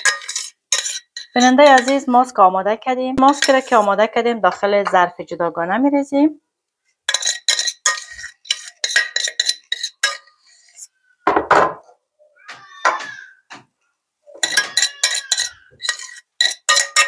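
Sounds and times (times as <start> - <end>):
metal spoon clinking on saucepan: 0.0 - 2.1, 3.3 - 3.8, 7.1 - 10.4, 14.4 - 17.0
squeaky scrape: 7.2 - 11.0, 14.4 - 16.4.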